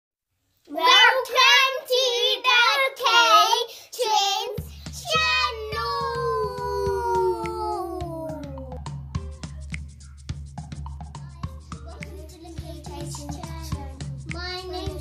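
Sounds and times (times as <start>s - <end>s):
child singing: 0.7s - 8.8s, 11.2s - 15.0s
low drone with light beat: 4.6s - 15.0s.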